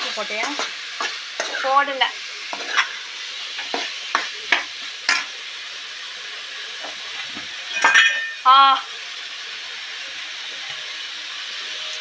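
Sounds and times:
steel spoon scraping pan: 0.0s - 1.9s, 2.5s - 5.3s, 7.6s - 8.4s
chicken sizzling in hot oil: 0.0s - 12.0s.

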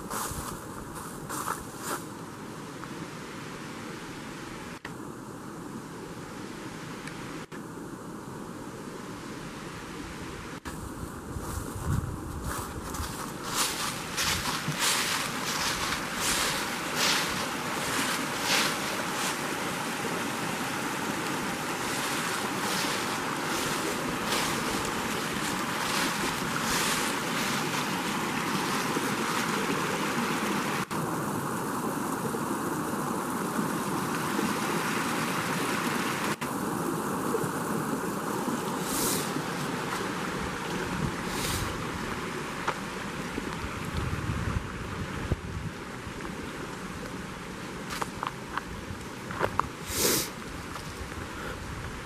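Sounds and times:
brook flowing over stones: 12.8s - 44.9s, 45.7s - 52.0s.

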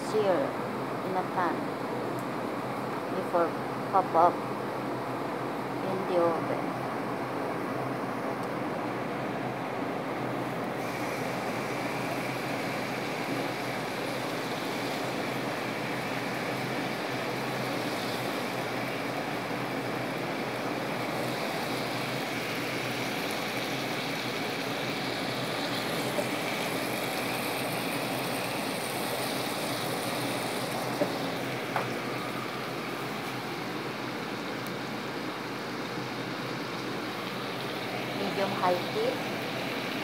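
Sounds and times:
fish sizzling in a frying pan: 10.8s - 34.4s.

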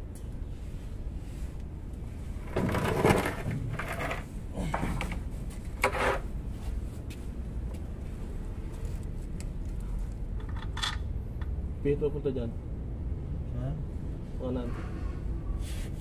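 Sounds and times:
metal parts scraping and clunking: 2.4s - 6.3s.

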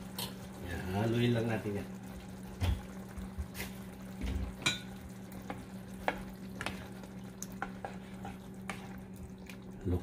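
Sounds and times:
spatula scraping and stirring: 4.6s - 9.7s.

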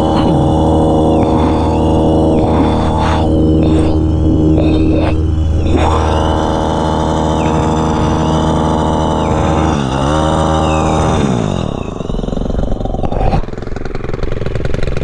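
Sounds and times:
hedge trimmer engine running: 0.0s - 15.0s.

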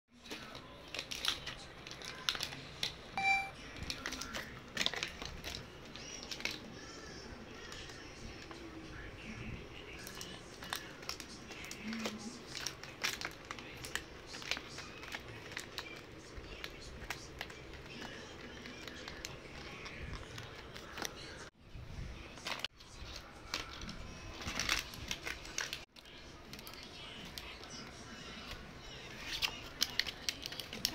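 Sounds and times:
puppy chewing crinkly plastic: 0.1s - 21.4s, 22.2s - 30.9s
plastic crackling and clicking: 0.2s - 3.0s, 3.8s - 6.7s, 9.9s - 21.3s, 28.4s - 30.9s.

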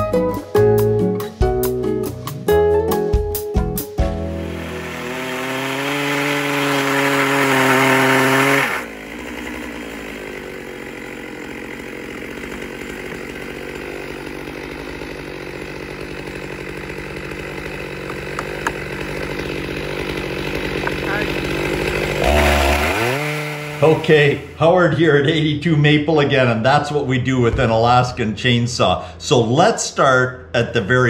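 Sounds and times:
chainsaw cutting through log: 4.1s - 24.8s.

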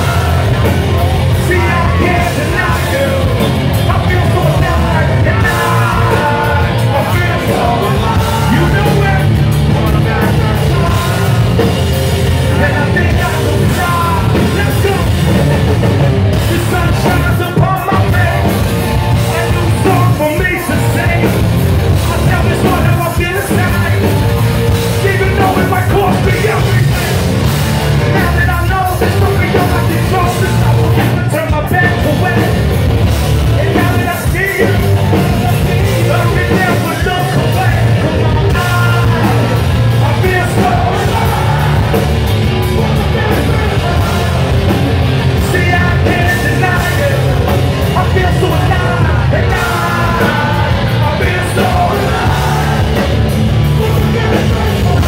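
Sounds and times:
bass guitar: 0.0s - 55.0s
drums: 0.0s - 55.0s
electric guitar: 0.0s - 55.0s
singer singing and shouting: 0.0s - 55.0s.

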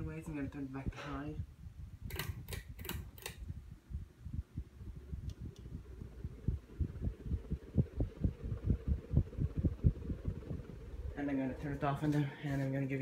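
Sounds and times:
fan air buffeting microphone: 0.0s - 13.0s
fan control click: 2.1s - 3.5s, 5.2s - 6.2s.

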